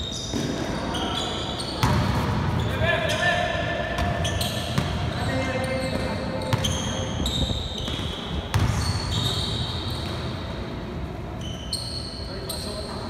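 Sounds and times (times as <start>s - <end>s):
sneakers squeaking on floor: 0.0s - 13.0s
basketball bouncing: 1.8s - 2.4s, 4.0s - 5.1s, 5.9s - 9.3s.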